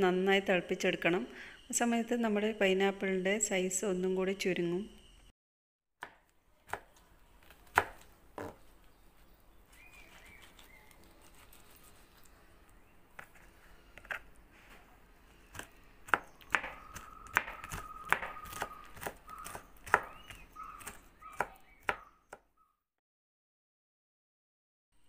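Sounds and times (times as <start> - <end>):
knife chopping on wooden board: 6.0 - 8.6, 15.5 - 22.4.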